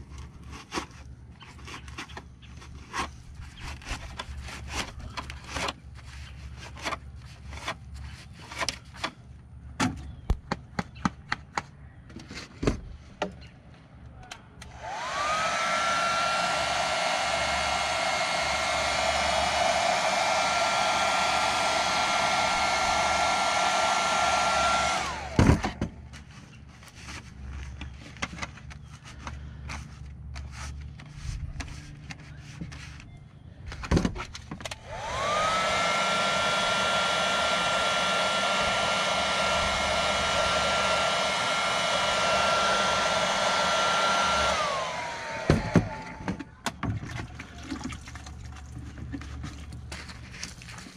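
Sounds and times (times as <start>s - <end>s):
heat gun motor whine: 14.6s - 25.8s, 34.7s - 46.4s.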